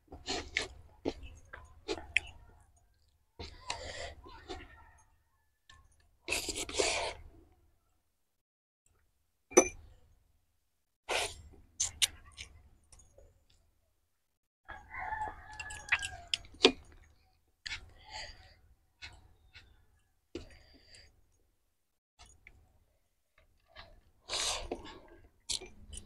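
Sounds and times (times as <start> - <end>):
chewing: 0.1 - 5.0, 15.1 - 21.1, 23.4 - 26.0
rooster crowing: 14.7 - 16.4.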